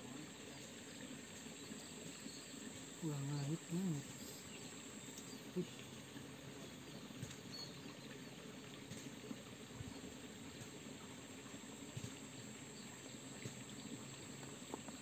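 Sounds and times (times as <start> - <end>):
faint steady hiss: 0.0 - 15.0
light ticks: 5.1 - 6.0.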